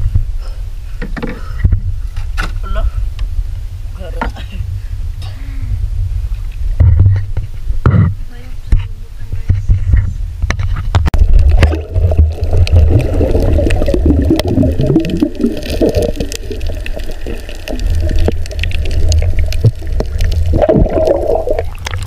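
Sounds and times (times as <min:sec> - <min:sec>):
muffled underwater rumble: 0:00.0 - 0:22.0.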